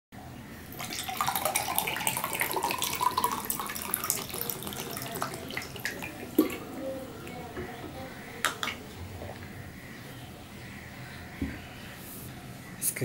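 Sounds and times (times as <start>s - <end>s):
water pouring into a glass: 0.7s - 7.4s.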